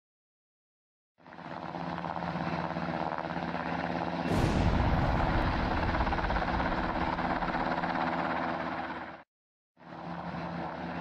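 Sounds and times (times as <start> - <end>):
helicopter rotor chopping: 1.2 - 9.2, 9.8 - 11.0
bomb explosion: 4.3 - 7.8.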